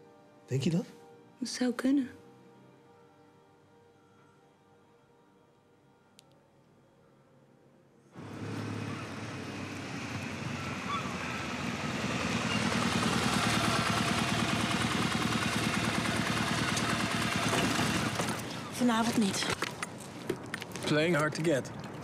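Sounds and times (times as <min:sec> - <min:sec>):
motorcycle engine running: 0:08.2 - 0:18.7.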